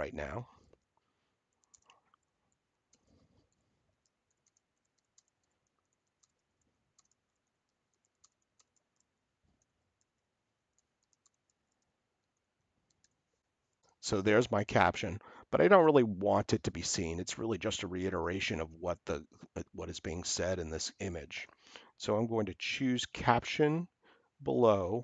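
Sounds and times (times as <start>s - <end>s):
keyboard typing: 1.5s - 13.2s.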